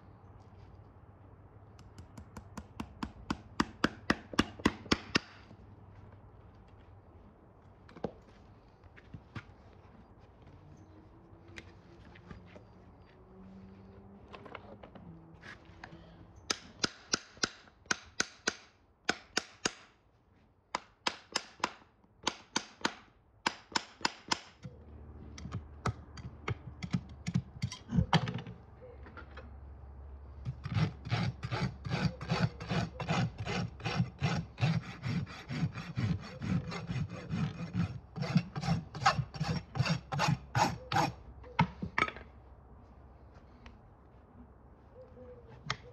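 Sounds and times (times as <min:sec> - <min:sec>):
rasp filing a hoof: 0:30.4 - 0:41.2.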